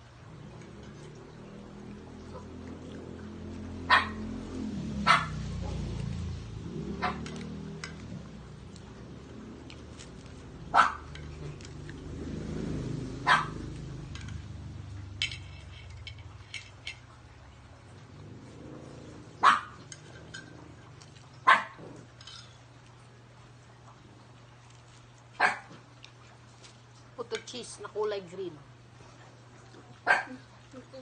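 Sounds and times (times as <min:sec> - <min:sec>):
low steady hum: 0:00.0 - 0:31.0
dog barking: 0:03.8 - 0:04.4, 0:05.0 - 0:05.9, 0:07.0 - 0:07.2, 0:10.7 - 0:11.1, 0:13.2 - 0:13.7, 0:19.4 - 0:19.8, 0:21.4 - 0:21.8, 0:25.4 - 0:25.8, 0:30.0 - 0:30.4.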